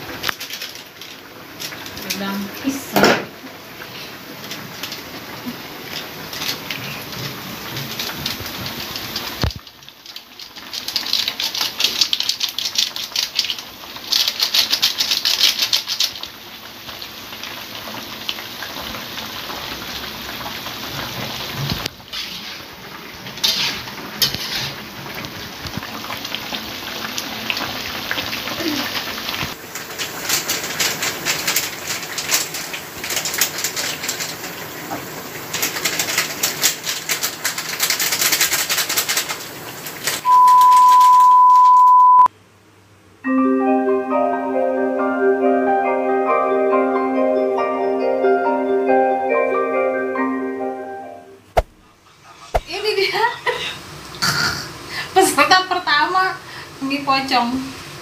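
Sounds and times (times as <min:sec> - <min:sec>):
stew sizzling in a wok: 0:00.0 - 0:40.3, 0:51.6 - 0:58.0
spatula scraping pan: 0:21.5 - 0:25.2.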